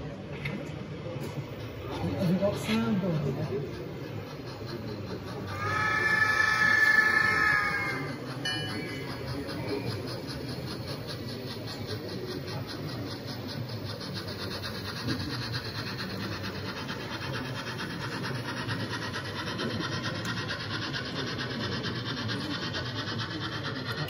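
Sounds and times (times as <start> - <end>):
steady background hum: 0.0 - 24.0
model steam locomotive rasping: 0.1 - 24.0.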